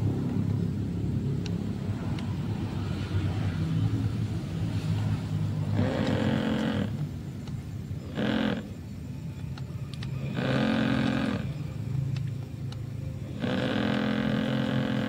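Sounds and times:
model boat motor rumbling: 3.8s - 9.2s, 10.2s - 15.0s.

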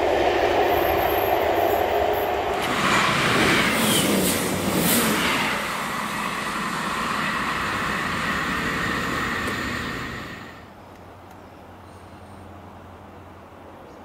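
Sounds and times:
train wheels rumbling on rails: 0.0s - 10.8s.

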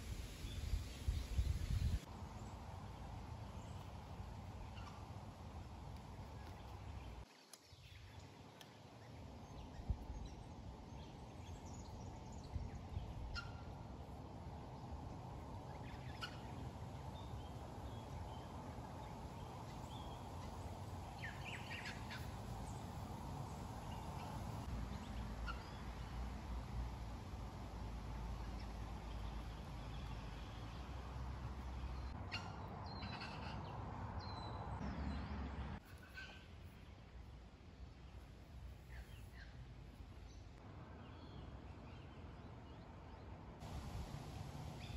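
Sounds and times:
low background rush: 36.4s - 44.9s.

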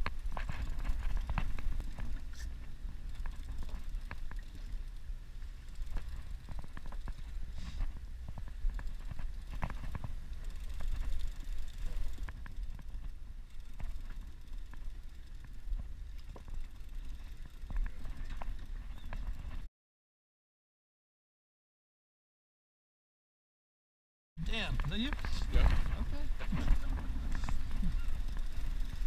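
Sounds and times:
fishing reel clicking: 0.0s - 19.2s, 27.2s - 29.0s
boat rumble: 0.0s - 19.7s, 24.4s - 29.0s.

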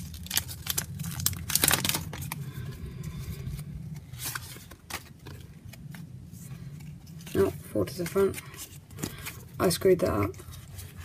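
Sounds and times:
cards rustling and clicking: 0.0s - 2.4s, 3.9s - 11.0s
foil wrapper crinkling: 0.0s - 2.4s.

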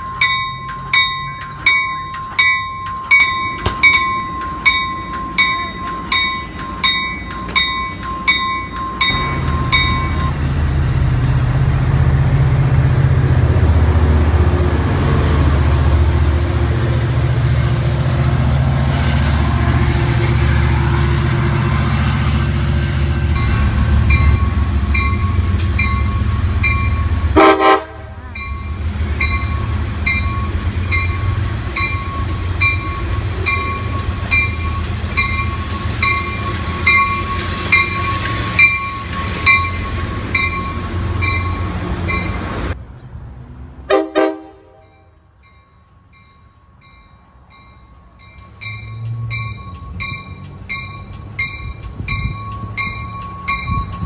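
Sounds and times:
bell ringing: 0.0s - 10.4s, 23.4s - 27.2s, 28.4s - 42.5s
passing train rumbling: 0.0s - 54.0s
train horn toots: 27.4s - 28.3s, 43.9s - 45.1s.

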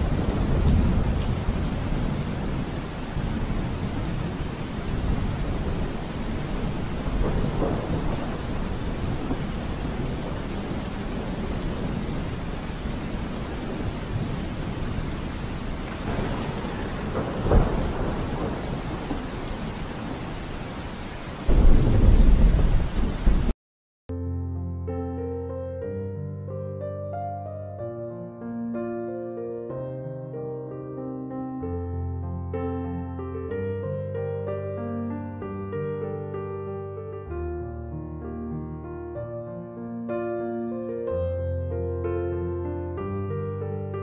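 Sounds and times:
piano music: 0.0s - 15.0s, 24.1s - 44.0s
thunder rolling: 0.0s - 20.6s, 21.4s - 23.5s
steady rain: 0.0s - 23.6s.

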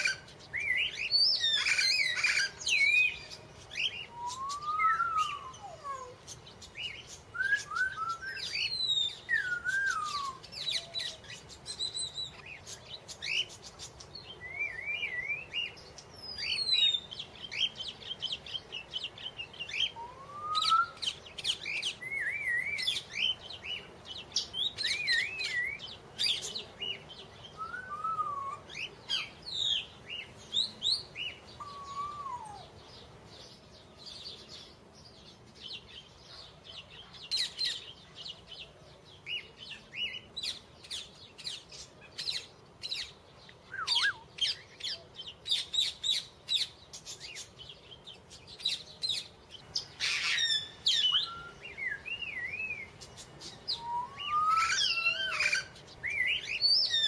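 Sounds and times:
songbirds chirping and singing: 0.0s - 57.0s.

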